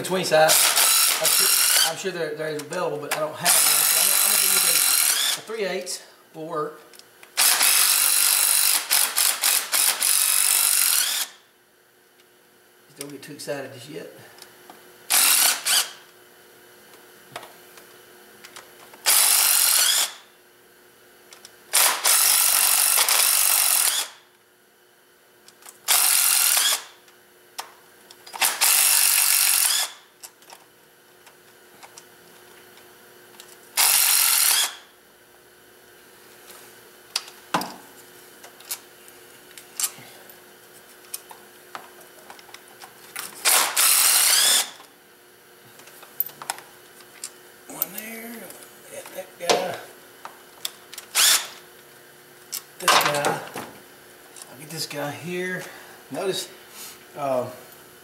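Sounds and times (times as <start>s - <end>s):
cordless power tool spinning bolts: 0.4s - 2.0s, 3.4s - 5.5s, 7.3s - 11.4s, 15.1s - 16.0s, 19.0s - 20.3s, 21.7s - 24.2s, 25.7s - 27.0s, 28.2s - 30.1s, 33.7s - 34.9s, 43.2s - 44.9s, 51.0s - 51.6s.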